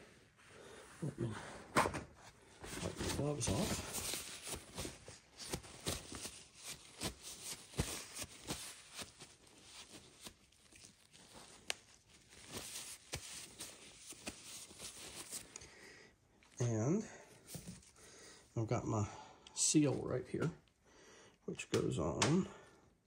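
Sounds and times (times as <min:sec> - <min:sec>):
gloves rustling and crinkling: 0:02.3 - 0:16.6, 0:17.2 - 0:18.4.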